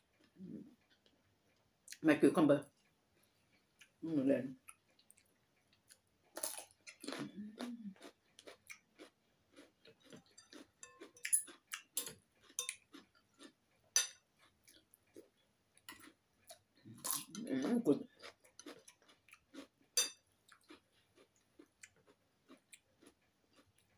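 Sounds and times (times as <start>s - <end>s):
person chewing noodles: 2.8s - 4.0s, 4.6s - 23.9s
cutlery clicking on ceramic bowl: 10.3s - 12.8s, 14.0s - 14.2s, 20.0s - 20.2s.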